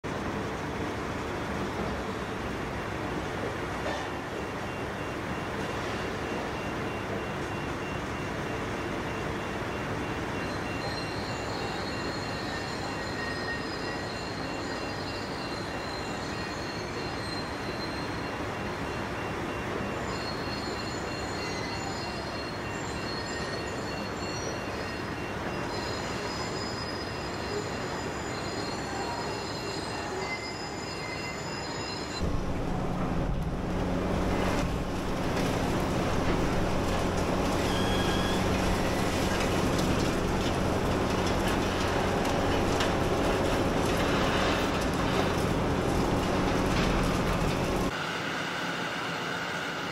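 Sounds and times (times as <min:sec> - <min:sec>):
high-pitched metallic squeals: 0:10.4 - 0:19.0, 0:19.9 - 0:47.9
excavator machinery din: 0:32.2 - 0:47.9
deep machinery hum: 0:32.2 - 0:48.0.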